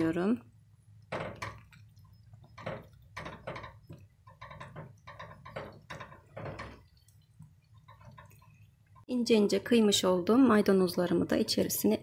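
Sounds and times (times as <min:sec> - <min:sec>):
spatula stirring soup in pot: 0:00.5 - 0:09.6.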